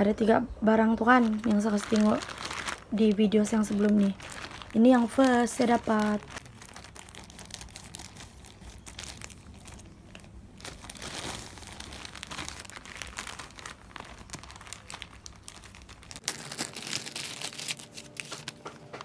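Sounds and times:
plastic packaging crinkling: 0:00.8 - 0:19.0
scissors cutting plastic mailer: 0:16.1 - 0:19.0.

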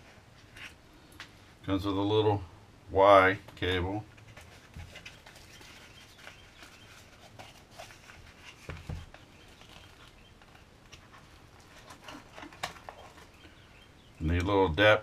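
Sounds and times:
packaging rustling: 0:04.1 - 0:13.7.

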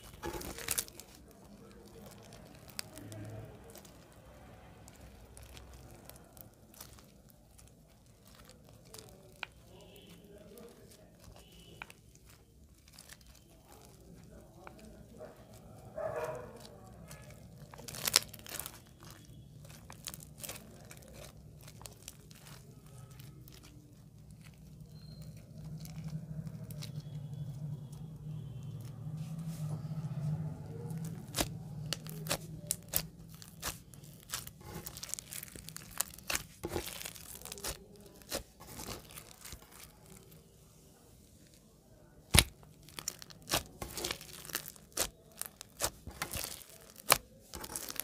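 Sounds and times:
slime crackling and popping: 0:00.0 - 0:40.5, 0:41.3 - 0:48.0.

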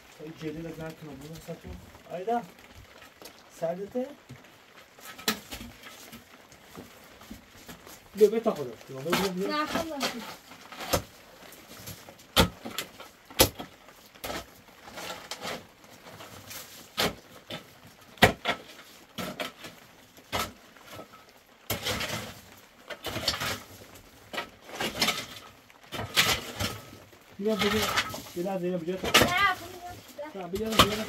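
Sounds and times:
hoe scraping and raking: 0:14.2 - 0:17.7, 0:21.7 - 0:31.0
hoe striking stony dirt: 0:29.0 - 0:29.5, 0:30.5 - 0:31.0.

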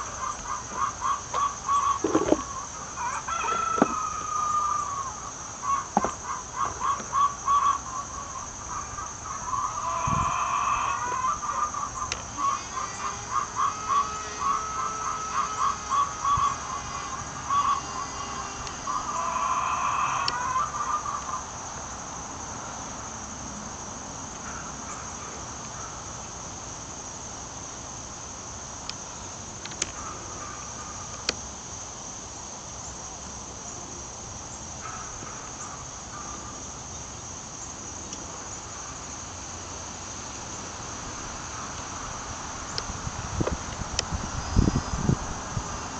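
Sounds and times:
insects chirring: 0:00.0 - 0:45.9
high-pitched hum: 0:09.2 - 0:20.4.

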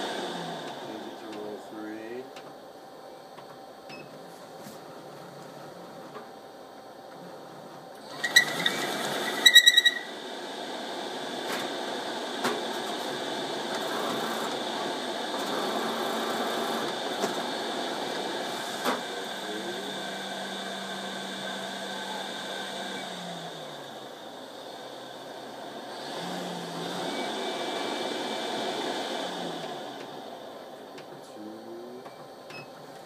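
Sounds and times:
motor whirr with high whine: 0:07.0 - 0:33.0
gear squeaks: 0:08.2 - 0:10.0.

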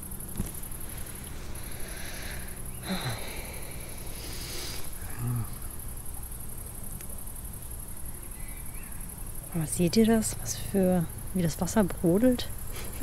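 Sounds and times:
low background rumble: 0:00.0 - 0:13.0
person humming: 0:02.8 - 0:03.7, 0:05.0 - 0:05.7.

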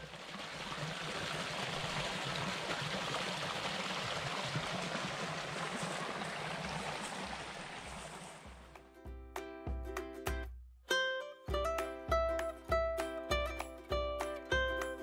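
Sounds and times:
stream rushing and splashing: 0:00.0 - 0:08.7.

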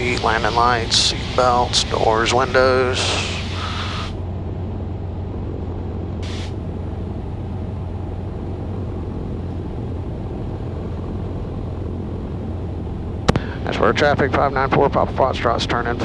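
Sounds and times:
propeller plane engine droning: 0:00.0 - 0:16.0
short hiss: 0:03.0 - 0:04.2, 0:06.2 - 0:06.6.

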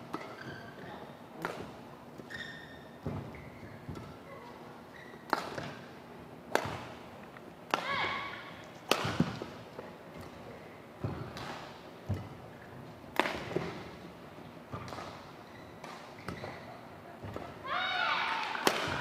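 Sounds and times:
shoe squeak on floor: 0:00.2 - 0:01.0, 0:02.2 - 0:03.9, 0:04.9 - 0:05.3, 0:15.4 - 0:16.8
racket striking shuttlecock: 0:05.3 - 0:05.8, 0:06.5 - 0:06.9, 0:08.8 - 0:09.5, 0:13.1 - 0:13.8, 0:18.3 - 0:19.0.

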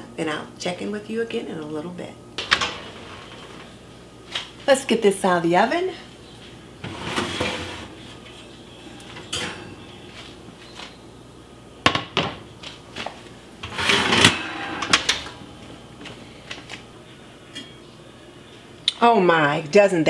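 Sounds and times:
oven door shutting: 0:02.4 - 0:03.8, 0:06.8 - 0:08.3, 0:13.6 - 0:15.5
oven rack sliding: 0:02.4 - 0:03.8, 0:06.8 - 0:09.8, 0:13.6 - 0:15.5.

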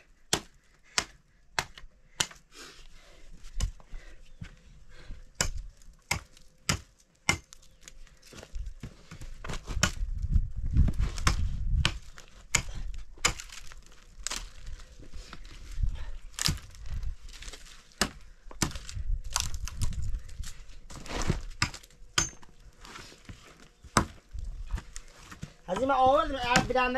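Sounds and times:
dry branches dragged: 0:18.8 - 0:21.6.

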